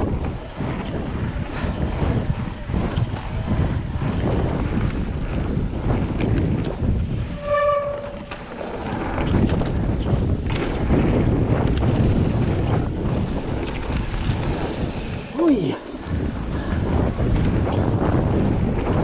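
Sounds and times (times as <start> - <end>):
bike tyre rumble on gravel: 0.0 - 19.0
wind buffeting microphone: 0.0 - 19.0
high squeal: 7.2 - 8.4
bike rattling over stones: 8.0 - 15.4.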